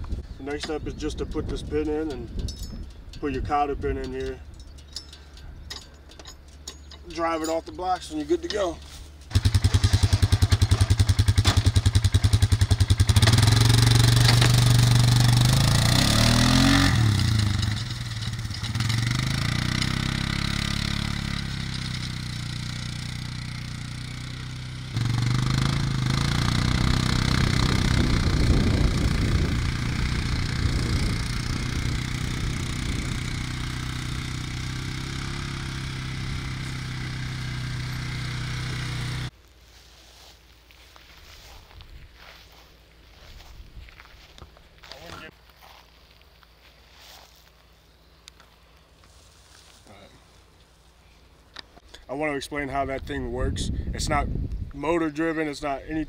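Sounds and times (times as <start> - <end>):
atv engine idling and revving: 3.2 - 39.4
disc plow dragging through turf: 46.6 - 47.5, 49.1 - 50.9.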